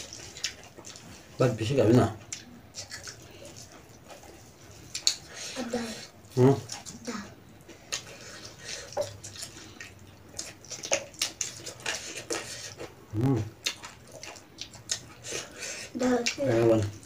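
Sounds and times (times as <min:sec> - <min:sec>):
wet chewing and lip smacks: 0:00.0 - 0:01.4, 0:02.2 - 0:17.0
small eating clicks: 0:00.0 - 0:17.0
short hummed mm: 0:13.1 - 0:13.5.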